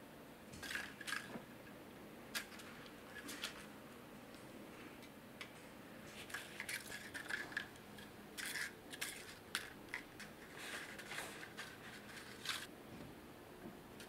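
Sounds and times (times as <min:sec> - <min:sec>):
paper coin wrappers rustling: 0:06.2 - 0:07.8, 0:08.4 - 0:12.7.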